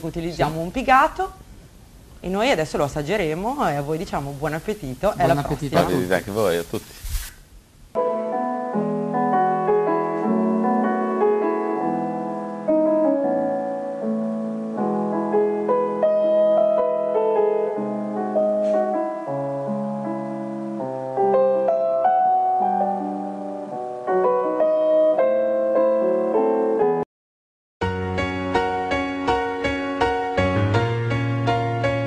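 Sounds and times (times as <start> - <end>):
background piano music: 8.0 - 27.0, 27.8 - 32.0.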